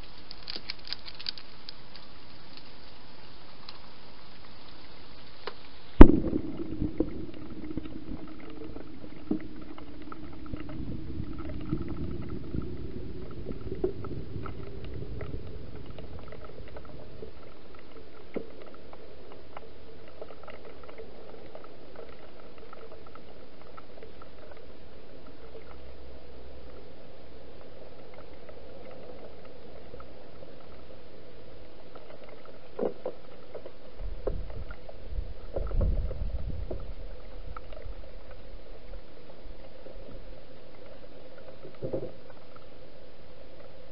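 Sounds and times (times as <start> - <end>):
steady hiss: 0.0 - 43.9
low rumble: 6.0 - 19.2.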